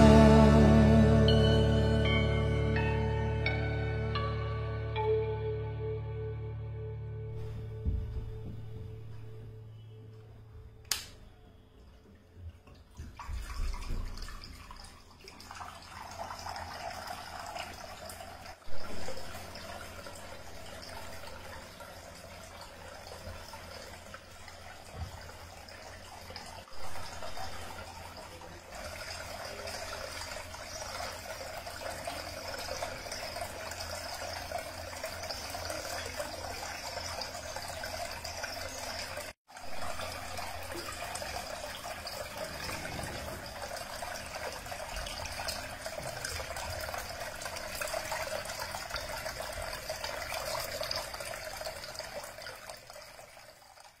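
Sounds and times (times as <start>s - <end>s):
knock: 7.8s - 8.8s
fountain water trickling and splashing: 12.3s - 54.0s.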